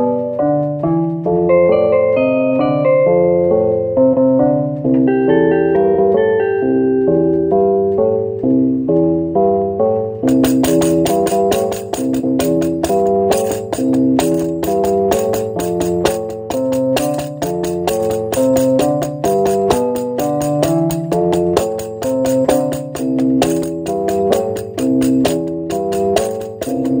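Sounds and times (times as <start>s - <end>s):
boogie-woogie keyboard music: 0.0s - 27.0s
percussion rhythm: 10.2s - 27.0s.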